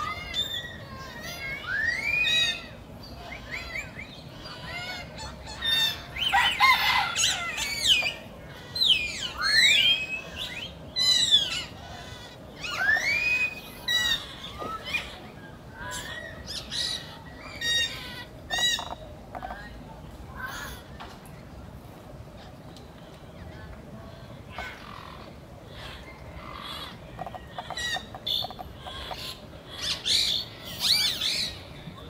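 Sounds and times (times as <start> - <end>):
monkeys squealing: 15.9 - 19.0, 26.6 - 31.6.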